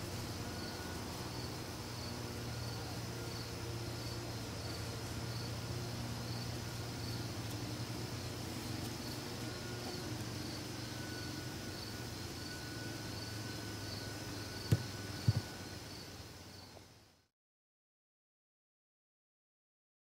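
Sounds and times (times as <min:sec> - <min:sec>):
insect chirping: 0:00.0 - 0:17.1
steady low hum: 0:00.0 - 0:17.3.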